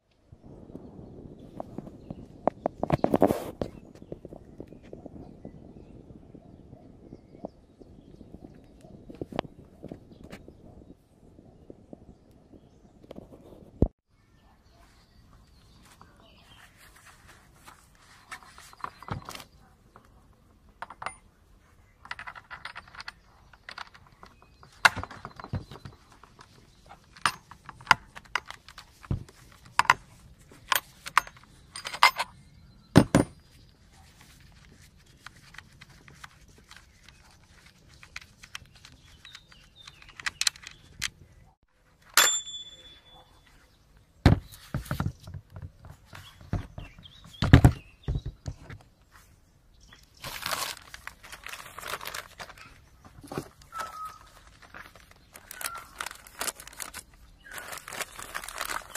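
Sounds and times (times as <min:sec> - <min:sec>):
chainsaw parts clicking and clattering: 0:22.0 - 0:32.3
short ringing tone: 0:42.2 - 0:43.2.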